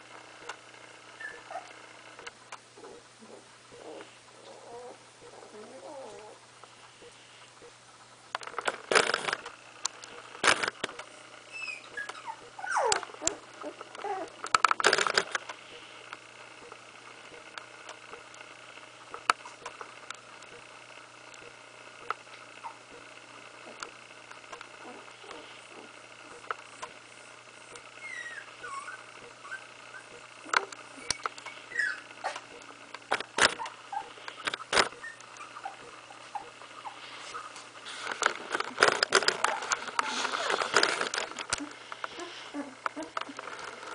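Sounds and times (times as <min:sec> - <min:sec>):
puppy whimpering: 0:01.2 - 0:01.8, 0:02.8 - 0:06.4, 0:11.5 - 0:14.4, 0:22.6 - 0:22.8, 0:24.8 - 0:25.9, 0:28.0 - 0:32.6, 0:33.4 - 0:37.6, 0:39.3 - 0:40.7, 0:41.5 - 0:43.5
sharp clicks and knocks: 0:08.3 - 0:11.1, 0:12.9 - 0:18.4, 0:32.3 - 0:35.0, 0:38.0 - 0:42.2.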